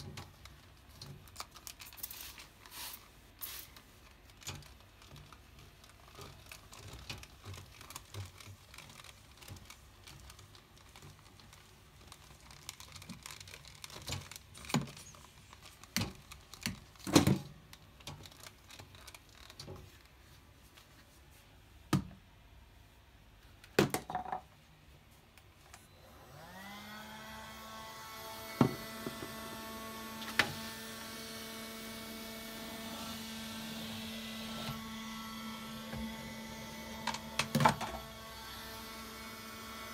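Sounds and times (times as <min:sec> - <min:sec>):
electric motor humming and whining: 0:26.0 - 0:39.9.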